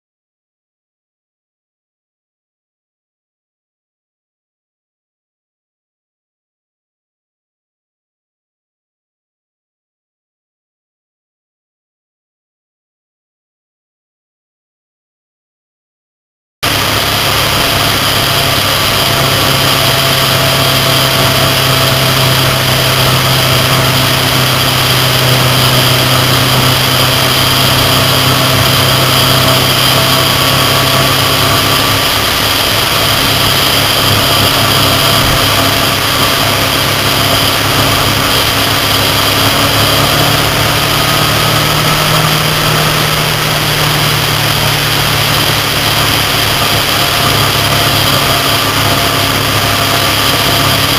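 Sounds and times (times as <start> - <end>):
motorcycle engine running: 16.6 - 50.9
wind and road rush: 16.6 - 50.9.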